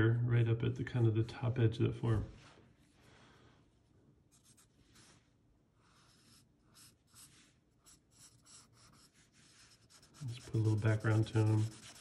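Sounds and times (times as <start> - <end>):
pencil scratching on paper: 5.8 - 12.0.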